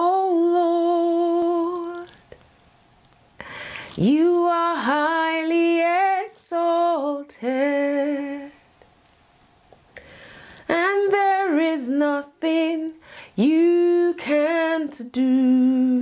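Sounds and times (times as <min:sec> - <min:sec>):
woman singing unaccompanied: 0:00.0 - 0:02.3, 0:03.9 - 0:08.7, 0:10.6 - 0:16.0.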